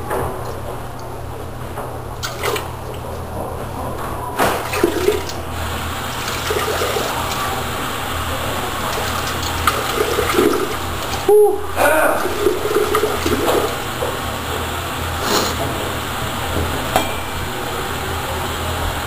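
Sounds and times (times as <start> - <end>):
water running: 2.1 - 19.0.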